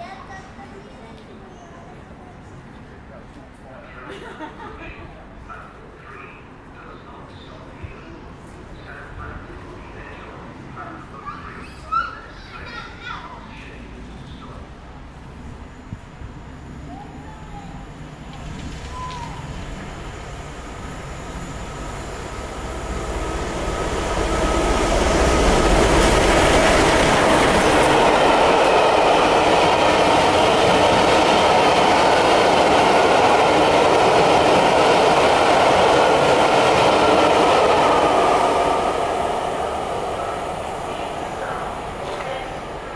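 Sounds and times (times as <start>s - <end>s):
steam train passing at speed: 14.2s - 42.9s.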